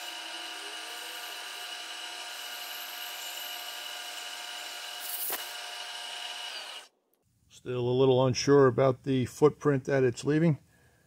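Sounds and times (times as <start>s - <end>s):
milling machine whine: 0.0s - 6.9s
cutting hiss: 5.0s - 5.5s.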